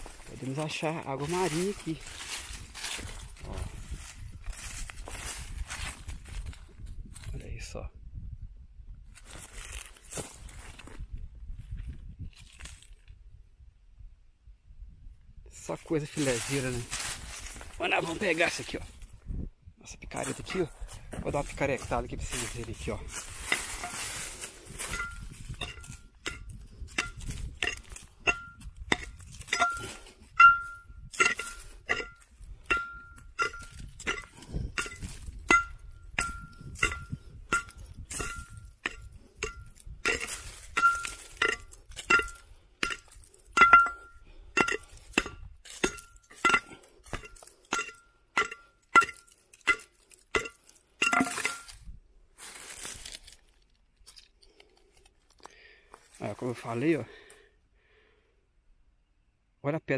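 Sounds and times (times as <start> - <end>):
pickaxe striking rocky ground: 0.0 - 6.2, 22.2 - 52.0.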